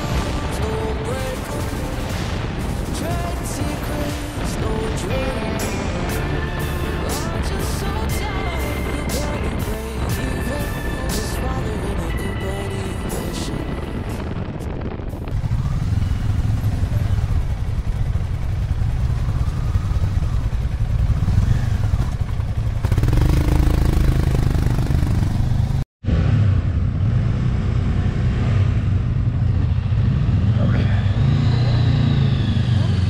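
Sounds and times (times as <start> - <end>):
motorcycle engines running: 15.2 - 33.0.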